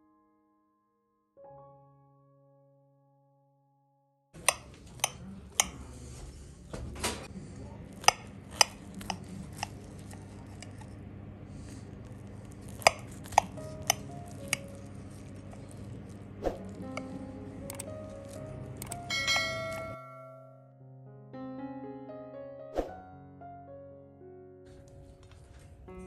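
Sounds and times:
steady low hum: 4.4s - 20.5s
piano note: 13.5s - 26.0s
cutlery clinking on plate: 18.8s - 20.3s.

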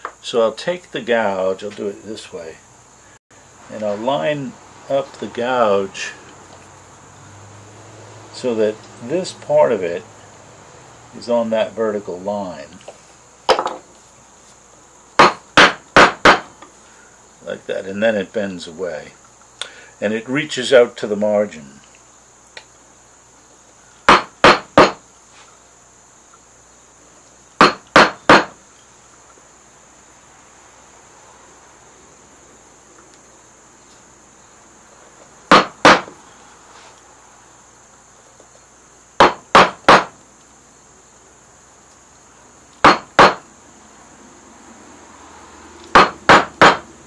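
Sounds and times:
mallet striking a carving gouge: 24.1s - 25.0s, 27.6s - 28.5s, 35.5s - 36.1s, 39.2s - 40.1s, 42.8s - 43.4s, 45.9s - 46.8s.

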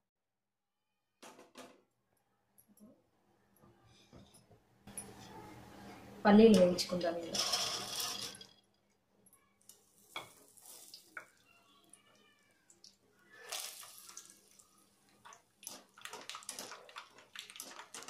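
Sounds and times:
peanuts sizzling in hot oil: 7.2s - 8.4s, 9.7s - 11.5s, 13.3s - 18.0s.

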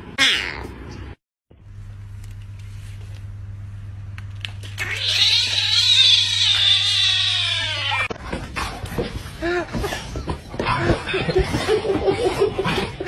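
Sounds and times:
low electrical hum: 0.0s - 13.0s
cat meowing loudly: 4.8s - 8.1s
kitten meowing: 4.8s - 8.1s.

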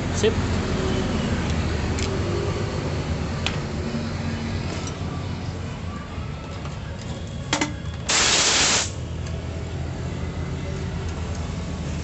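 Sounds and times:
hissing spray blast: 8.1s - 9.0s.

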